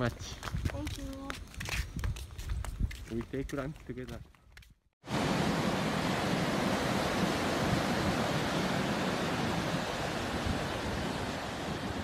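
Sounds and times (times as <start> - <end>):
ocean surf breaking on beach: 5.0 - 12.0.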